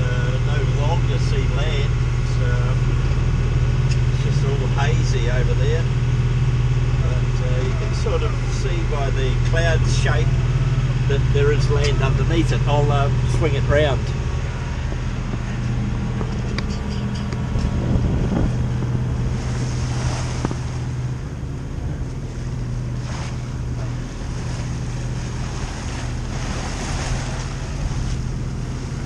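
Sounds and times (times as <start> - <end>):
boat engine drone: 0.0 - 29.0
water rushing along a hull: 0.0 - 29.0
wind on the microphone: 14.0 - 29.0.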